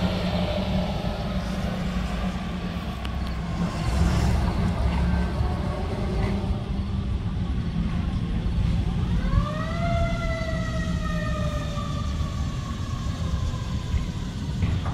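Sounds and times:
steady low rumble: 0.0s - 9.5s
emergency vehicle siren wailing: 8.4s - 14.9s.

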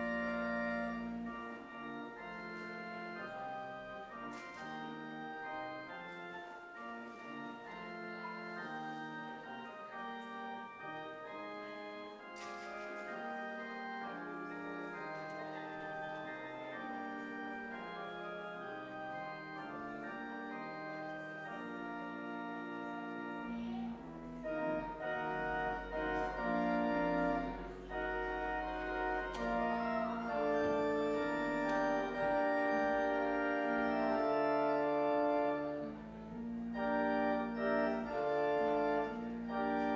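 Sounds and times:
church organ chords: 0.0s - 39.9s.

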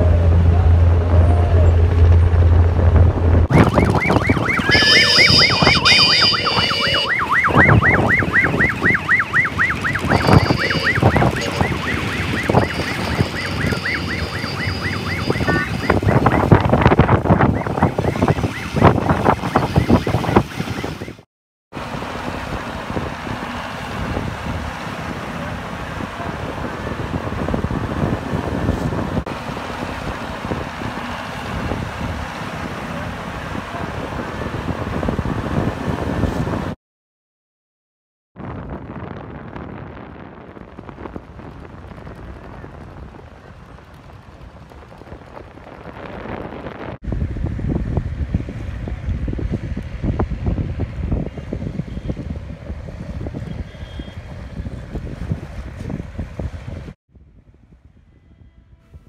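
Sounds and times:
wind noise: 0.0s - 21.2s, 21.8s - 36.8s, 38.4s - 59.0s
engine and traffic rumble: 0.0s - 36.8s, 38.4s - 59.0s
electronic siren yelp: 3.5s - 21.2s.

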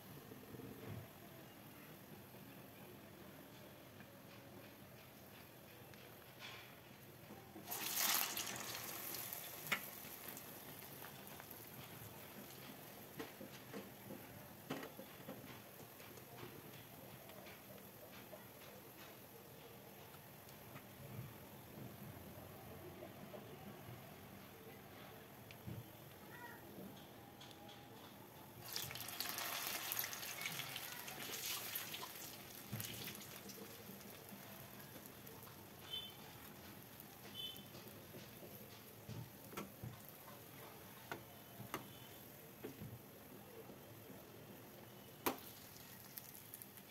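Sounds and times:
hot oil sizzling: 7.6s - 14.7s, 28.6s - 41.0s, 45.1s - 46.9s.

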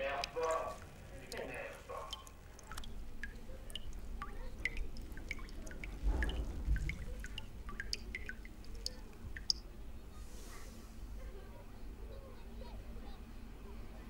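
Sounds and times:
water dripping: 0.0s - 9.9s
low rumble: 5.9s - 7.8s.

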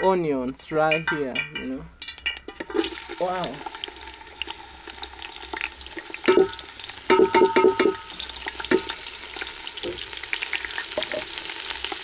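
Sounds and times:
onions sizzling in hot oil: 2.2s - 12.0s
plate knocking against pot: 6.3s - 8.0s.

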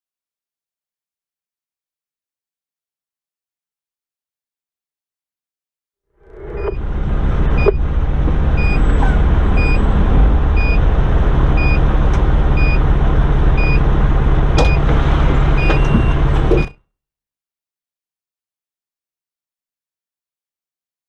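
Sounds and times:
fire engine diesel running: 6.2s - 16.7s
backup alarm beeping: 6.3s - 7.9s, 8.5s - 10.0s, 10.6s - 10.9s, 11.6s - 11.8s, 12.6s - 12.8s, 13.6s - 13.8s, 14.6s - 14.8s, 15.6s - 16.7s.

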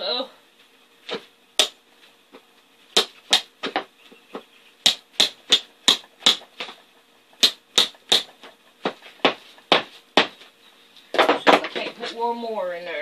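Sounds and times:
hammer tapping staples: 4.8s - 6.7s, 7.4s - 10.3s.

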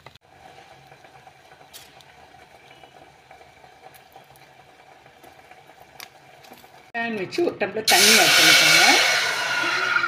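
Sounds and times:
faint crackles: 0.0s - 6.9s
gas burner flame hissing: 0.3s - 6.9s, 7.9s - 10.0s.

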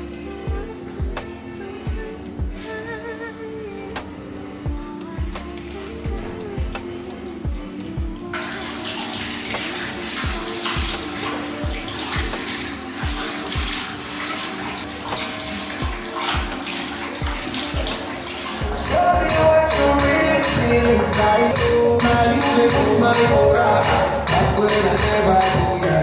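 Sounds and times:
background music with steady beat: 0.0s - 26.0s
water splashing: 8.4s - 20.5s.

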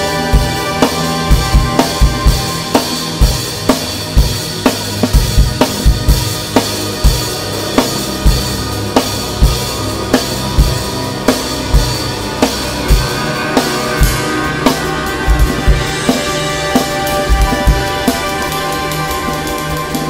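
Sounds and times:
drum kit playing a beat: 0.0s - 20.0s
sustained tones: 9.6s - 20.0s.

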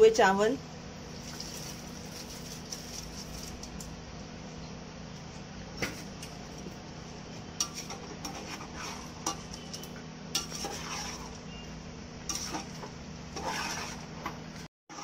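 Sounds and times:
steady low hum: 0.0s - 14.7s
metal spoon scraping metal pot: 7.6s - 11.4s, 12.3s - 14.3s.

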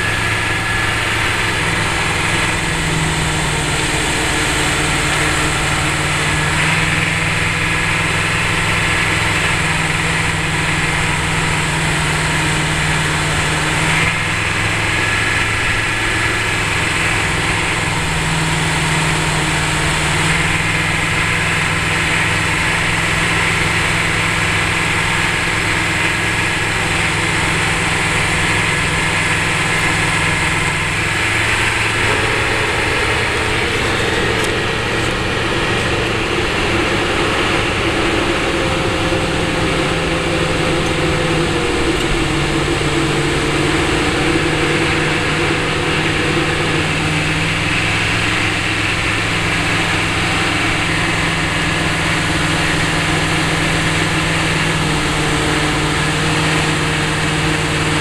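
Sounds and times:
vehicle engine and road noise: 0.0s - 58.0s.

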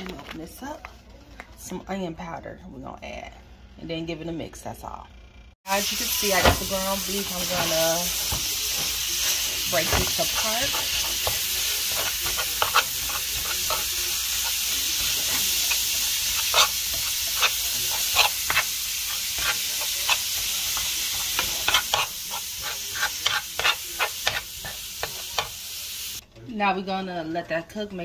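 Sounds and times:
meat sizzling in a frying pan: 5.6s - 26.2s
metal spoon scraping a pan: 5.9s - 25.5s.

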